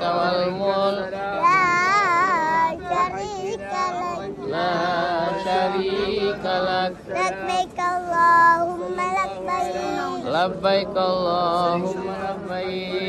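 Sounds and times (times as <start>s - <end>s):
girl chanting: 1.4s - 4.3s, 7.2s - 10.3s.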